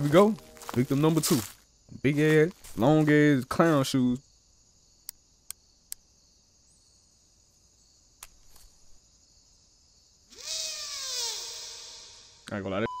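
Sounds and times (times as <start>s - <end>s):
horror film soundtrack: 0.0s - 1.6s
click: 5.0s - 6.0s.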